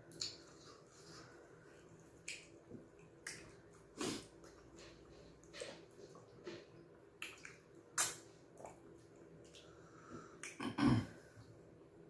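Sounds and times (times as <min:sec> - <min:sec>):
wet mouth smacks and chewing: 0:02.1 - 0:06.6, 0:07.2 - 0:09.7.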